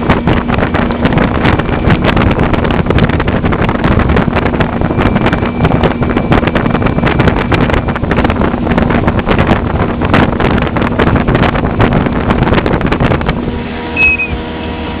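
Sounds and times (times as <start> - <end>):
motorboat engine: 0.0 - 15.0
wind buffeting microphone: 0.0 - 15.0
short high squeak: 13.9 - 14.5.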